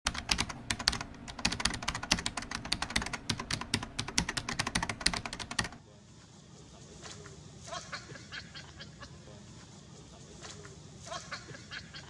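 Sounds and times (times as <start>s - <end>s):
keyboard typing clicks: 0.1s - 5.8s.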